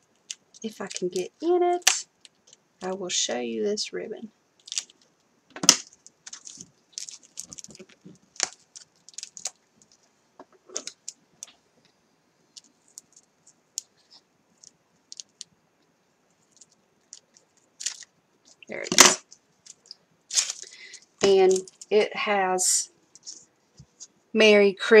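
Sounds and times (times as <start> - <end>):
packaging crinkling and clicking: 0.2 - 1.3, 4.6 - 10.1, 14.6 - 15.5, 16.5 - 21.9.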